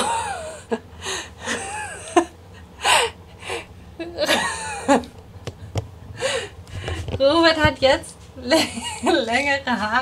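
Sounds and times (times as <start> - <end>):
breathy laughing: 0.0 - 5.1.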